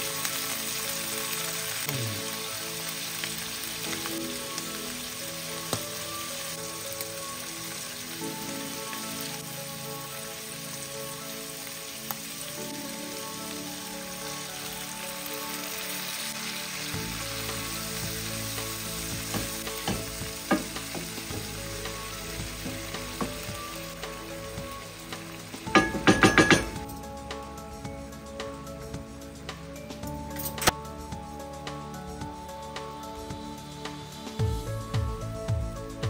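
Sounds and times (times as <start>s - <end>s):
food sizzling in a pan: 0.0s - 30.0s
wooden spoon knocking on pan: 19.4s - 21.4s, 25.7s - 26.8s.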